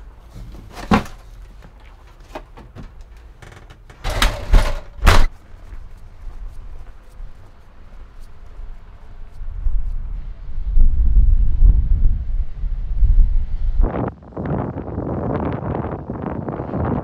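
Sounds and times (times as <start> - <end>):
camper door thumps: 4.0 - 5.3.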